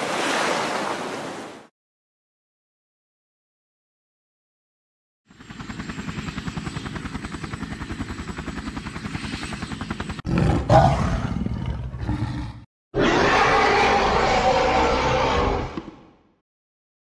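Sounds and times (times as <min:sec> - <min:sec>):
helicopter rotor chop: 0:05.3 - 0:11.5
monster growl: 0:10.3 - 0:15.8
loud monster roar: 0:10.3 - 0:16.0.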